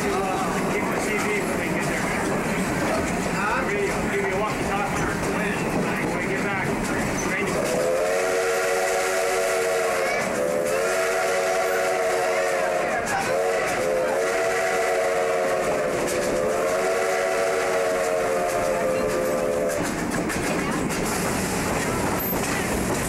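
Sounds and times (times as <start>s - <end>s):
rush of moving train: 0.0s - 23.0s
steam locomotive whistle blasts: 7.7s - 19.8s.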